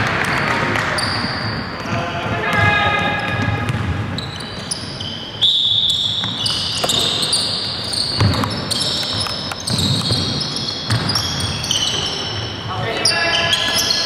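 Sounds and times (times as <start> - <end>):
shoes squeaking on court: 0.1 - 14.0
ball bouncing thuds: 8.2 - 8.6, 9.6 - 11.4.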